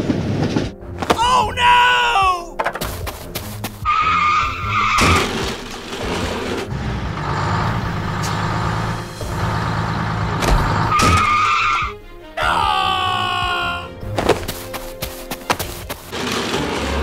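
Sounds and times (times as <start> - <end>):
tractor engine running: 2.7 - 11.4, 14.1 - 17.0.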